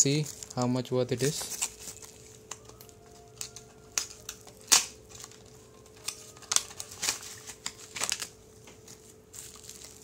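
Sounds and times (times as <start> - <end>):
package crinkling and snapping: 0.0 - 10.0.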